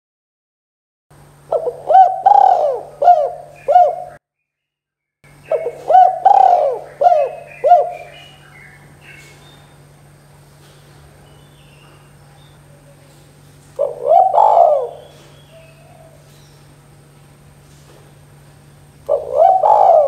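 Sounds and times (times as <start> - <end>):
dove cooing: 1.5 - 4.2, 5.5 - 8.4, 12.5 - 16.4, 19.1 - 20.0.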